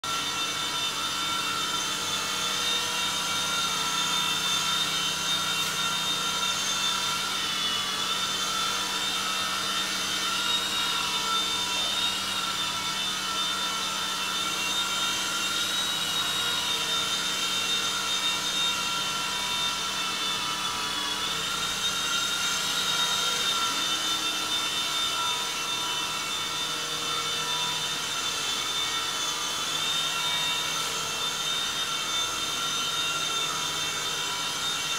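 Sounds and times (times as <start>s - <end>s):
toy helicopter motor whine: 0.0s - 34.9s.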